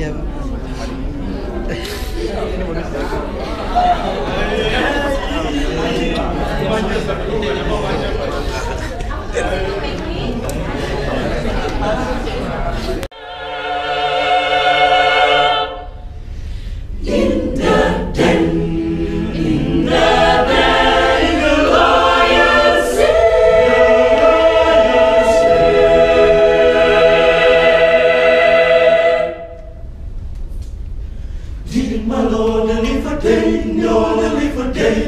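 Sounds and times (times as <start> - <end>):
choir singing a cappella: 13.1 - 16.2, 16.8 - 29.9, 31.6 - 35.0.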